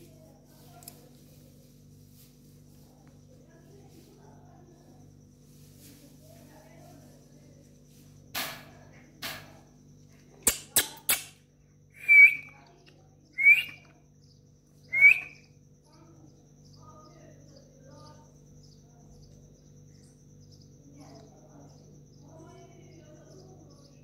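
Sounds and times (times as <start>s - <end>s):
sharp clicks: 10.4s - 11.4s.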